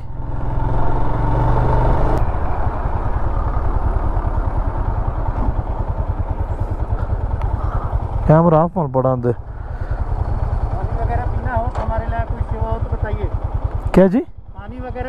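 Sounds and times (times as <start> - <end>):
motorcycle engine idling and pulling away: 0.0 - 15.0.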